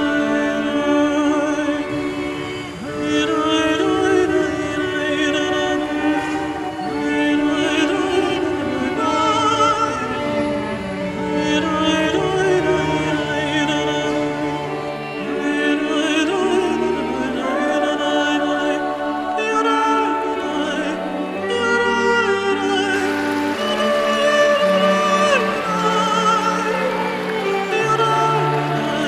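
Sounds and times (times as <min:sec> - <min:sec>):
slow song with singing: 0:00.0 - 0:29.0.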